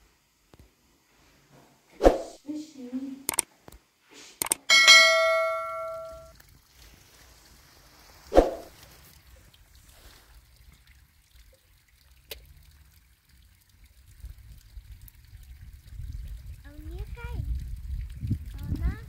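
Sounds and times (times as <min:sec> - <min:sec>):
sharp bang with ringing tail: 0:04.7 - 0:06.3.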